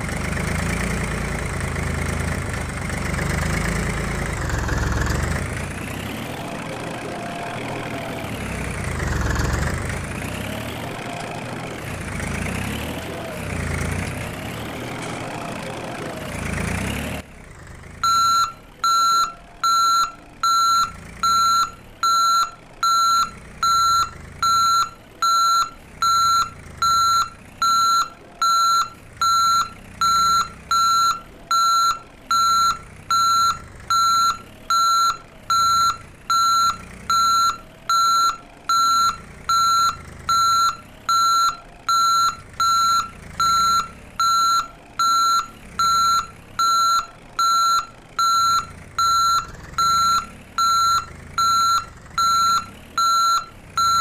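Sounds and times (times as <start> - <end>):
reversing alarm beeping: 18.0 - 54.0.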